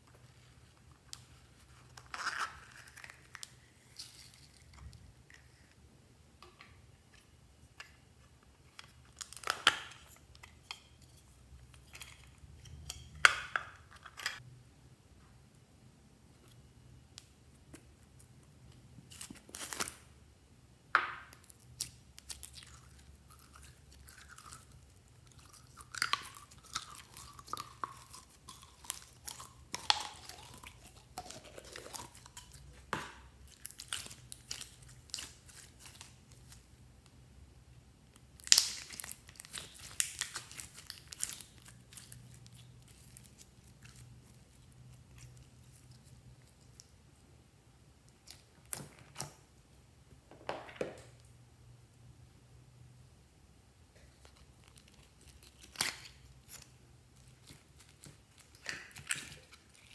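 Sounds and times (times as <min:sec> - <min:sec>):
slime squelching: 0:21.4 - 0:36.6.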